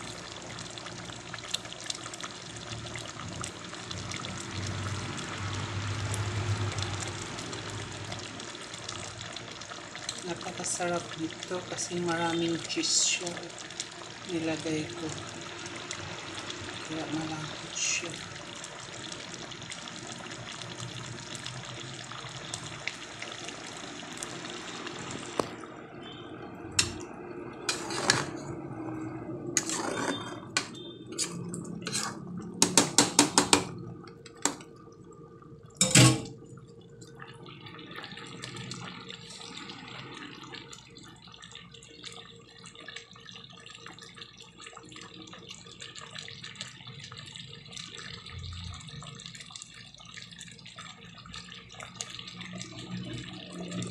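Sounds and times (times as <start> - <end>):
simmering sauce bubbling: 0.0 - 53.9
utensil knocking in metal pot: 32.6 - 33.7.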